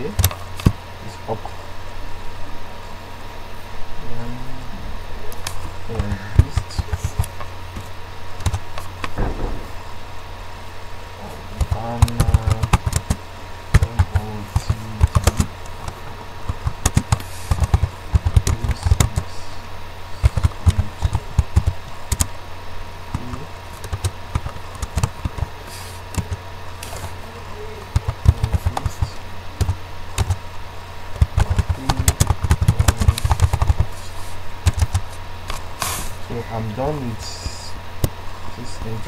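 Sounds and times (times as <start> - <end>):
steady low hum: 0.0 - 39.0
computer keyboard typing: 5.9 - 7.3, 8.4 - 9.1, 11.6 - 19.3, 20.2 - 22.3, 23.1 - 25.5, 26.1 - 27.1, 27.9 - 30.4, 31.2 - 33.9, 34.6 - 35.0.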